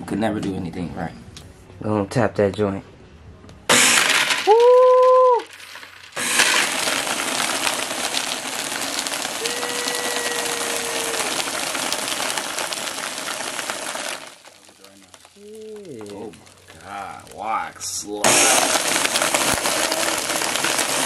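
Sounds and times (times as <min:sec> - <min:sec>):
blender crushing ice: 0:03.7 - 0:17.4, 0:18.1 - 0:21.0.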